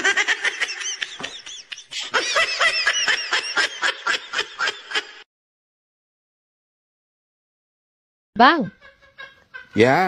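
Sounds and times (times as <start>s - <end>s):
high-pitched cackling laughter: 0.0s - 5.2s, 8.7s - 10.0s.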